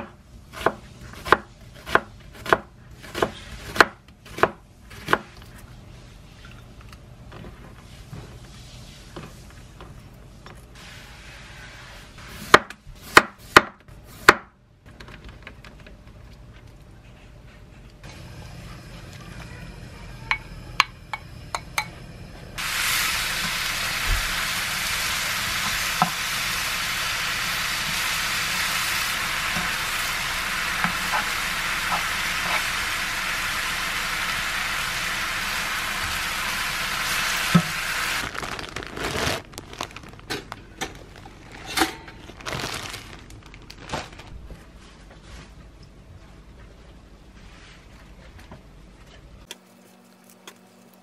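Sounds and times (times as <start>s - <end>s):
meat sizzling in a pan: 22.6s - 38.2s.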